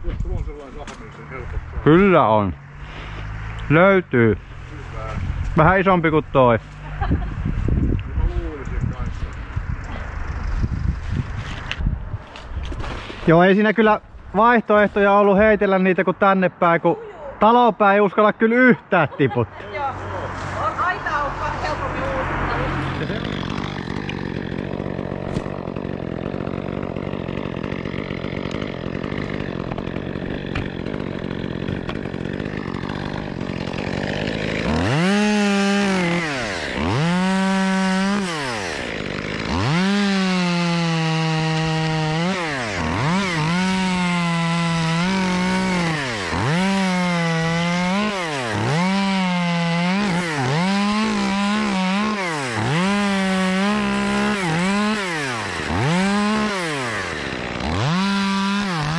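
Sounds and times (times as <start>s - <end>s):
chainsaw cutting wood: 0.0s - 3.8s, 12.4s - 13.6s, 20.3s - 58.9s
chainsaw idling and revving: 0.0s - 7.1s, 19.6s - 58.9s.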